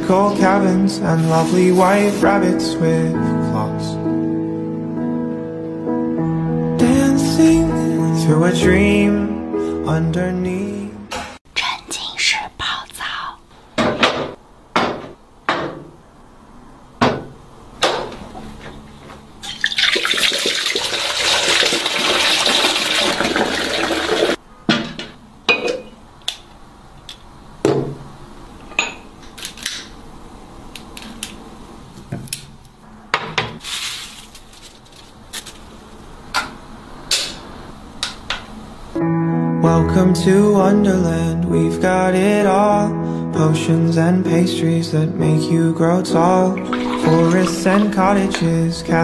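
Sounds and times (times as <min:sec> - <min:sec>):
bathroom items knocking and clinking: 0:13.8 - 0:15.9, 0:46.7 - 0:48.5.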